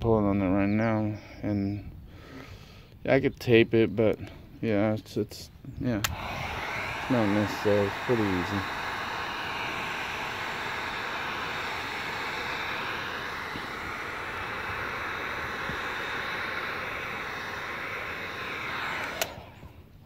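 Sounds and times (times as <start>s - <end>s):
heat gun blowing air: 6.0s - 20.0s.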